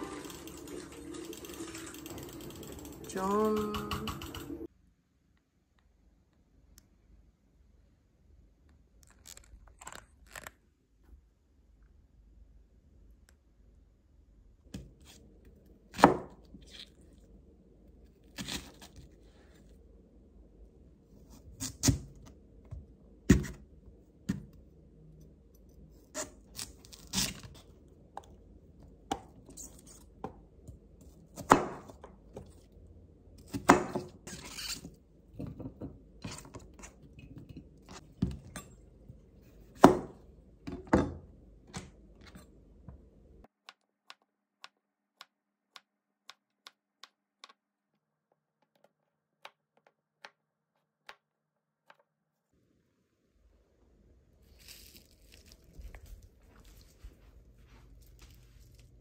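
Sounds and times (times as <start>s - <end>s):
objects knocking and scraping: 34.0s - 38.8s.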